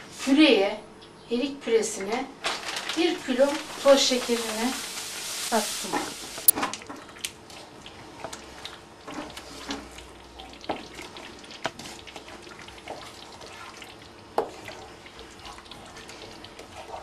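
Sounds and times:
liquid swishing in a pot: 3.3s - 17.0s.

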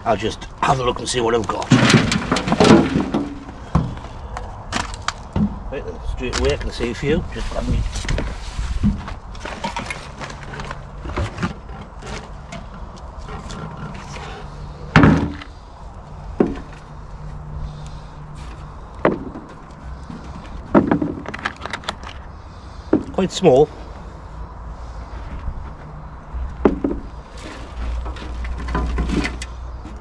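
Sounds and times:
soil rustling: 0.0s - 23.6s, 27.0s - 30.0s
knocks on wheelbarrow and plastic tray: 1.6s - 4.0s, 5.4s - 5.6s, 15.0s - 15.5s, 20.7s - 21.4s, 26.6s - 27.1s.

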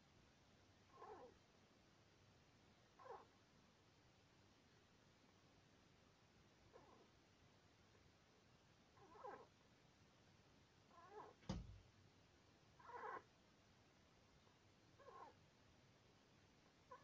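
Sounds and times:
hamster squeaking: 0.9s - 1.4s, 3.0s - 3.4s, 6.7s - 7.1s, 9.0s - 9.5s, 10.9s - 11.4s, 12.8s - 13.3s, 15.0s - 15.4s.

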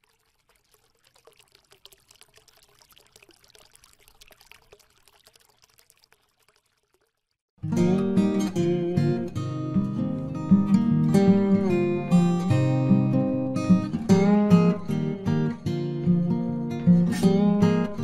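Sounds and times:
trickle of small clicks: 0.0s - 7.5s
strummed acoustic guitar: 7.6s - 18.0s.

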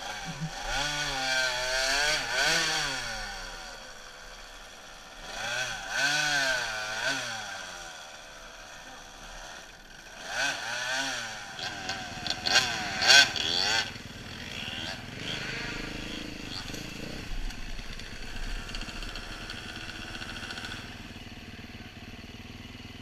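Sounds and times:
dirt bike engine revving: 0.0s - 23.0s
engine knocks: 15.8s - 21.0s.

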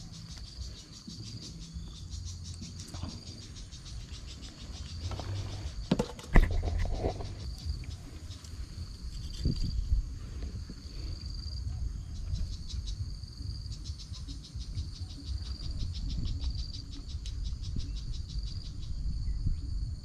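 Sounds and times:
insects trilling: 0.0s - 20.0s
low rumble: 0.0s - 20.0s
rapidly pulsing insect chirp: 0.0s - 20.0s.

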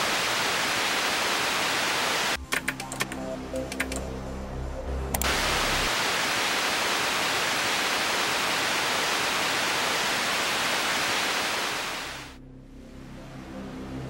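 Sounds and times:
static hiss: 0.0s - 2.4s, 5.2s - 12.4s.

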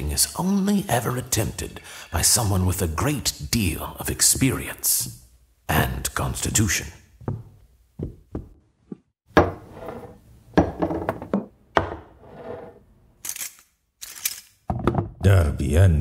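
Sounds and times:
tableware being set down: 9.3s - 12.8s.

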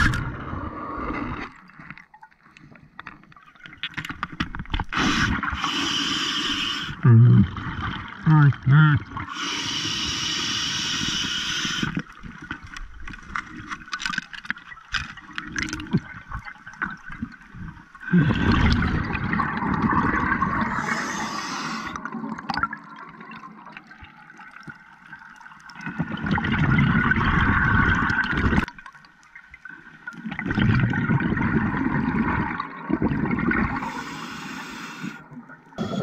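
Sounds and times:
exhaled bubbles gurgling underwater: 4.8s - 14.0s, 14.7s - 36.0s
regulator inhalation hiss: 5.0s - 7.0s, 9.3s - 12.0s, 20.7s - 22.0s, 33.8s - 35.2s.

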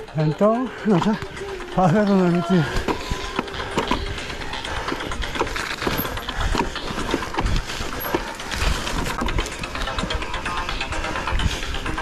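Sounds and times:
bike clattering over rough trail: 0.2s - 12.0s.

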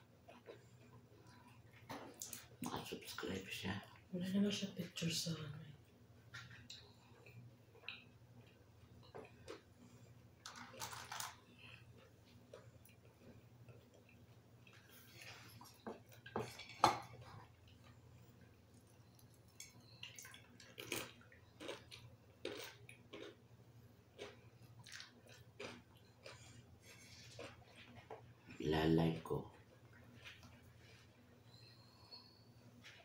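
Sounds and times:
dishes clinking: 16.3s - 17.3s.

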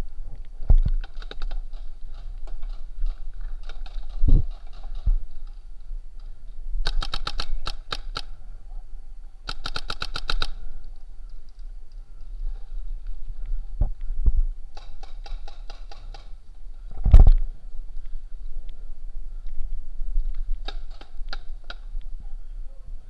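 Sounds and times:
paintball markers firing: 6.9s - 8.3s, 9.5s - 10.6s.

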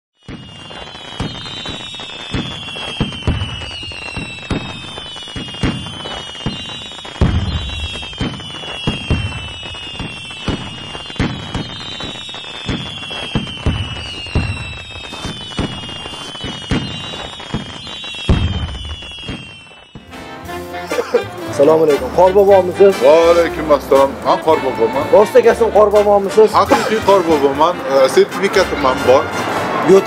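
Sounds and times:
falling firework whistles: 0.2s - 20.1s
fireworks bangs and crackles: 0.2s - 30.0s.

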